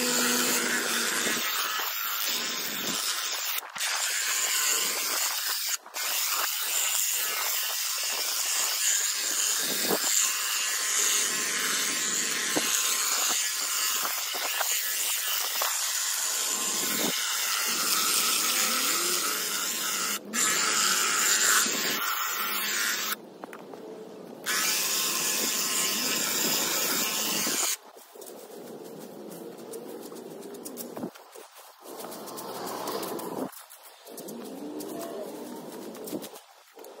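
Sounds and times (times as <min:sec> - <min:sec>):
hedge trimmer buzzing: 0:00.0 - 0:23.2, 0:24.5 - 0:27.8.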